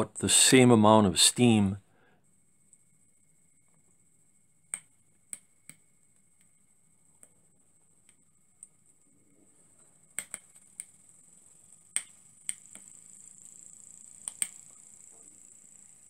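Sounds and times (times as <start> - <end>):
faint steady hiss: 0.0 - 16.0.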